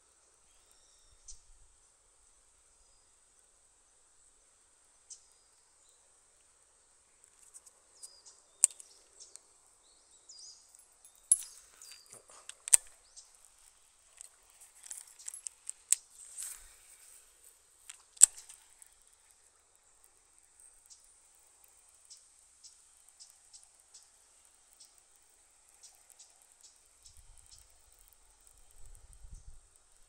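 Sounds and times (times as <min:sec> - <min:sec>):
sharp clicks and taps: 0:08.6 - 0:09.0, 0:11.1 - 0:16.6, 0:17.9 - 0:18.9
crickets trilling: 0:10.5 - 0:30.0.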